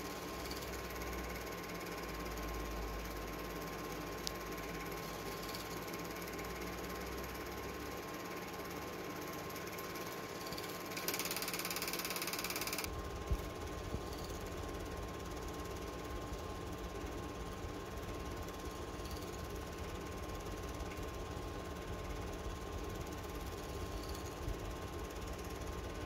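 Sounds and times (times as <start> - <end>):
film projector clatter: 0.0 - 16.2.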